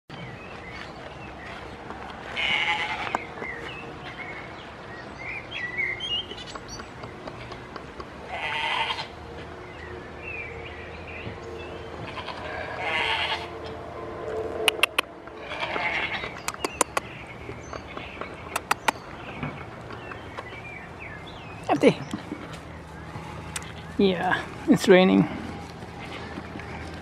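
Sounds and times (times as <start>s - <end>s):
goats bleating: 2.3s - 3.1s, 8.3s - 9.1s, 12.0s - 13.5s, 15.4s - 16.3s.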